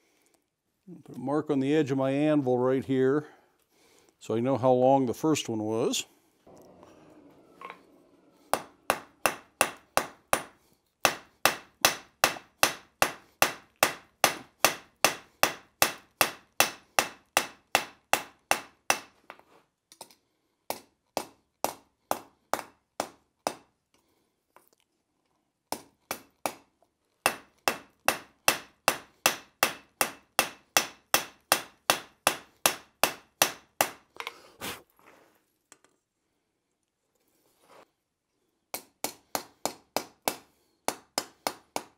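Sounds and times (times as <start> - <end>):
hammer striking metal on anvil: 8.5 - 19.1, 27.3 - 34.0.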